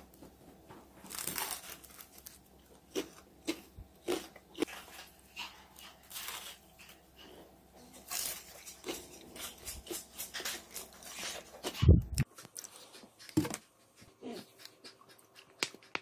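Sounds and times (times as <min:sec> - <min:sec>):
crunchy fried food crackling: 0:01.0 - 0:12.8.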